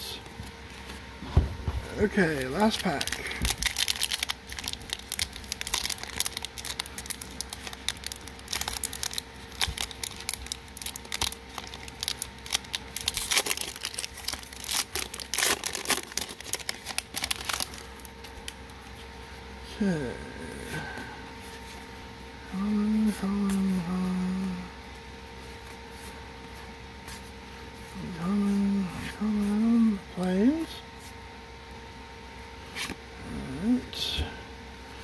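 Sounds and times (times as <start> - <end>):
foil wrapper crinkling and tearing: 2.2 - 18.7.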